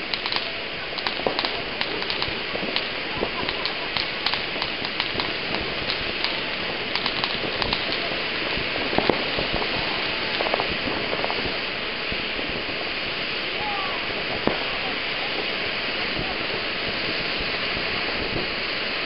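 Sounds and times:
firework fountain hissing and crackling: 0:00.0 - 0:19.0.

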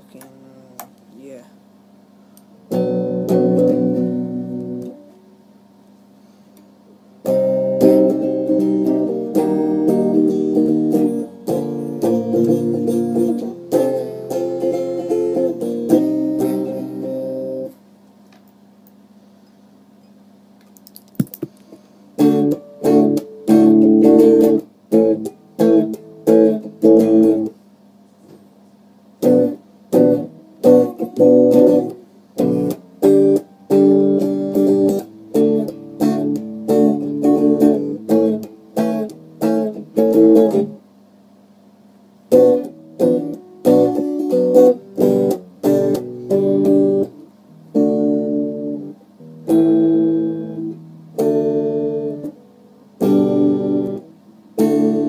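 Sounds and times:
guitar strumming chords: 0:02.6 - 0:05.2, 0:07.2 - 0:17.8, 0:21.2 - 0:27.6, 0:29.2 - 0:40.8, 0:42.3 - 0:55.0.

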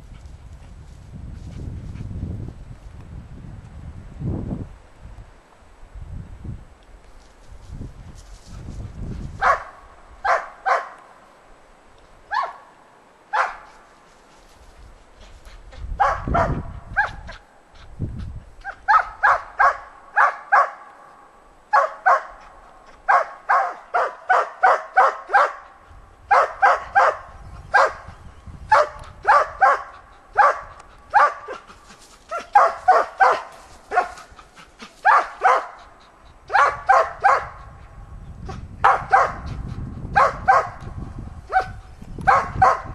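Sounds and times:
dog barking: 0:09.4 - 0:11.0, 0:12.3 - 0:12.6, 0:13.3 - 0:13.7, 0:16.0 - 0:17.2, 0:18.9 - 0:20.9, 0:21.7 - 0:22.4, 0:23.1 - 0:25.6, 0:26.3 - 0:28.1, 0:28.7 - 0:31.6, 0:32.3 - 0:34.2, 0:35.0 - 0:35.8, 0:36.5 - 0:37.6, 0:38.8 - 0:39.5, 0:40.2 - 0:40.8, 0:41.5 - 0:42.9.

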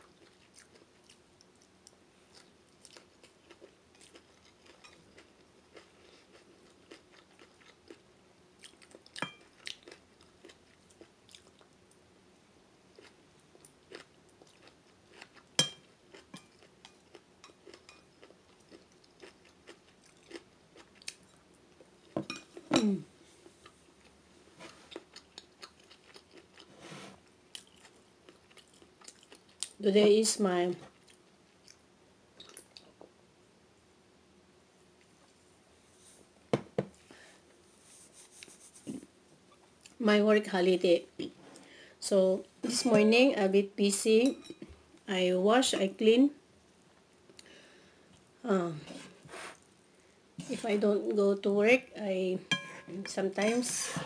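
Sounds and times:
person chewing noodles: 0:00.0 - 0:08.0, 0:08.6 - 0:11.8, 0:12.9 - 0:22.2, 0:24.8 - 0:26.7, 0:27.5 - 0:29.7, 0:32.4 - 0:32.9.

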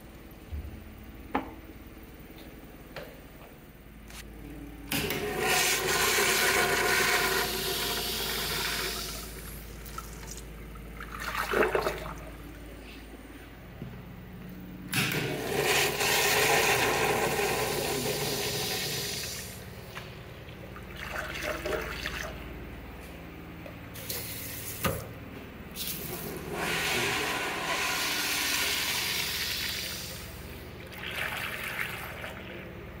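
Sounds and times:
urinal flushing: 0:04.9 - 0:13.0, 0:14.9 - 0:22.6, 0:25.8 - 0:33.0.

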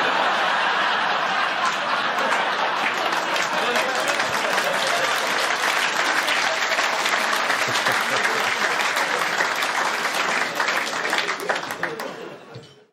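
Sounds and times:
audience applauding: 0:00.0 - 0:12.4.

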